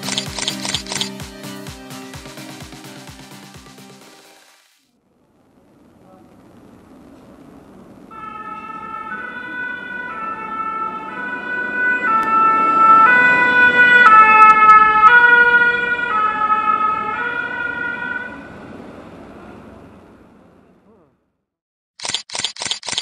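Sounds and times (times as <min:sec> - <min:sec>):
two-tone siren: 0:00.1 - 0:01.0, 0:08.1 - 0:18.7
vehicle engine and tyres: 0:05.0 - 0:21.3.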